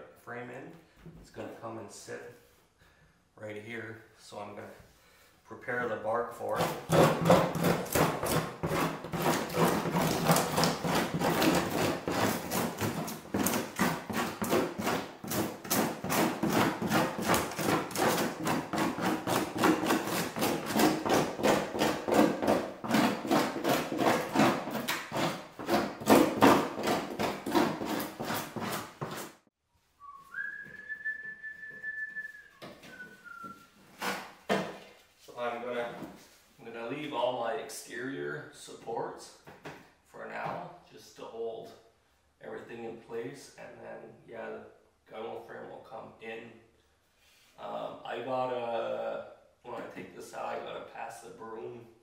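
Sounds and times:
knife scraping birch bark: 6.5s - 29.4s
steady whistle: 30.0s - 33.8s.

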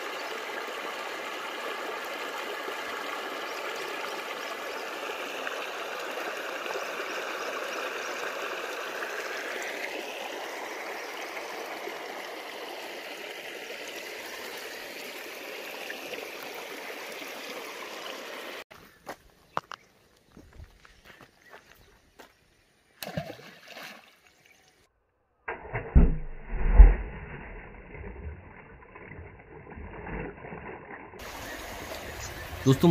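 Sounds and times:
stream running over rocks: 0.0s - 18.6s, 27.2s - 32.9s.

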